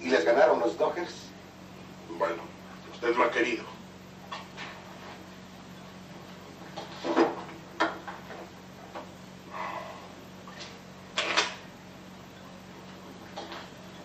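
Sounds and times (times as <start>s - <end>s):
film soundtrack hum: 0.0s - 14.0s.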